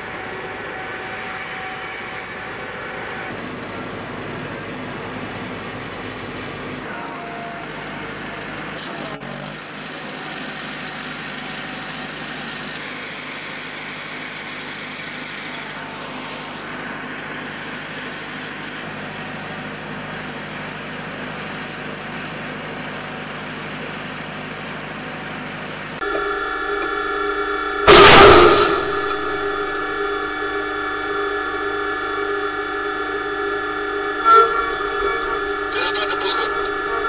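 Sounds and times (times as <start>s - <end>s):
vehicle machinery humming: 0.0s - 37.0s.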